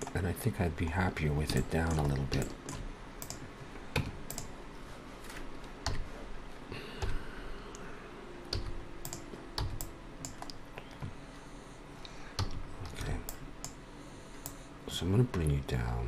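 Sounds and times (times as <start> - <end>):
keyboard keystrokes clicking: 1.4 - 3.4, 8.5 - 10.6.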